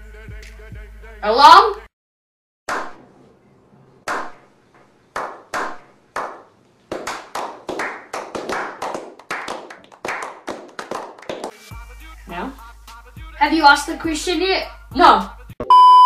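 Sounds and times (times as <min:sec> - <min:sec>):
people clapping: 0:05.2 - 0:11.7.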